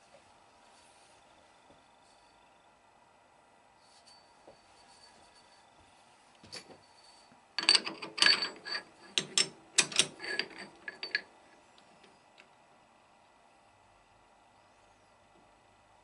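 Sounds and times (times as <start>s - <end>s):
metal bar clicking in lathe chuck: 7.6s - 11.2s.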